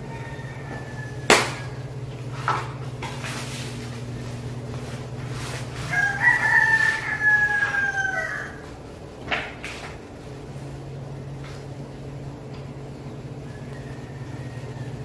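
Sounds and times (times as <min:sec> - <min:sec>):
rooster crowing: 0:00.0 - 0:02.1, 0:05.4 - 0:08.8, 0:13.0 - 0:15.0.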